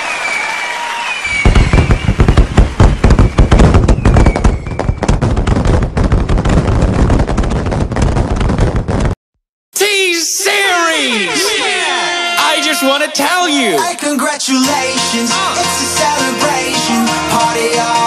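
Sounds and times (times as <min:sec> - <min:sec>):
whistling rocket: 0:00.0 - 0:06.2
fireworks crackling and popping: 0:00.0 - 0:09.2.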